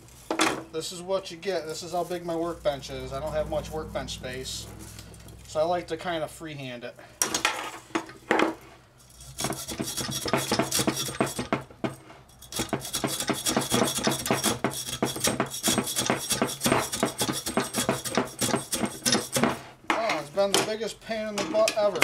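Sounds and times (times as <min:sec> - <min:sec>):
hacksaw rasping on copper: 0:09.1 - 0:19.8.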